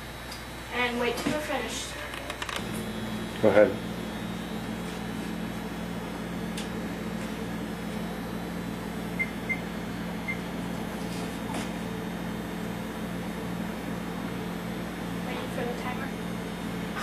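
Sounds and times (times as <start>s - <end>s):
steady low hum: 0.0s - 17.0s
microwave keypad beeps: 9.1s - 10.5s.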